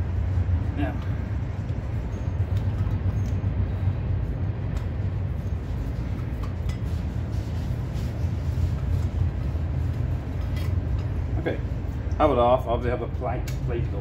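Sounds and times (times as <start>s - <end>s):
faint metallic clinks: 1.9s - 3.9s.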